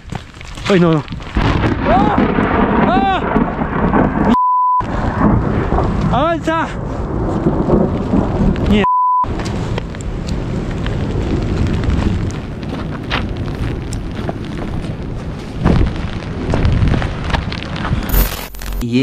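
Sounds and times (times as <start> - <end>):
wind buffeting microphone: 0.0 - 18.1
censor beep tone: 4.3 - 4.8, 8.8 - 9.3.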